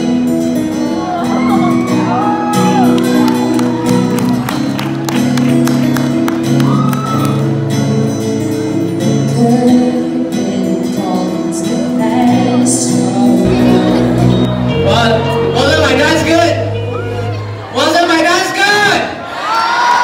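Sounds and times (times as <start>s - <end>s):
strummed acoustic guitars: 0.0s - 17.7s
girl singing: 9.3s - 14.4s.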